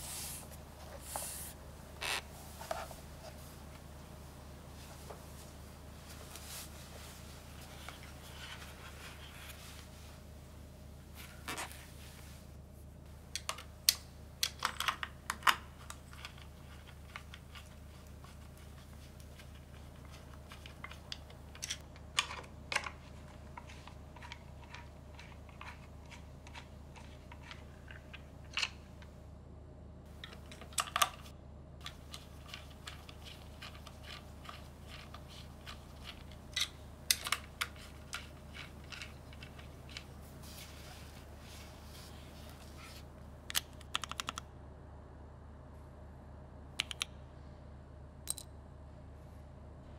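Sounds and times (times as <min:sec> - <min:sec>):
steady low hum: 0:00.0 - 0:49.9
keyboard switches clicking: 0:46.8 - 0:47.1.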